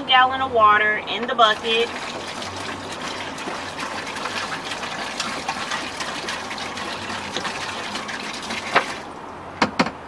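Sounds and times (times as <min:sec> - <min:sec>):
water pouring into plastic tub: 0:01.4 - 0:09.3.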